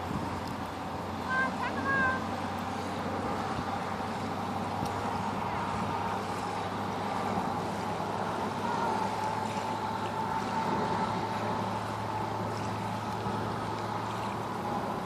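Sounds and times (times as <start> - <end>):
distant engine drone: 0.0 - 15.0.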